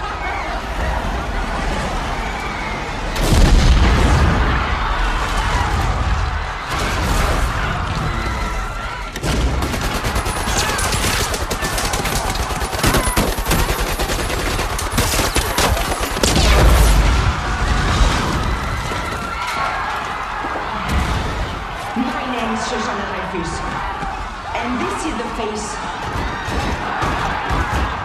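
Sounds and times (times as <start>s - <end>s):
submachine gun fire: 9.2s - 17.0s.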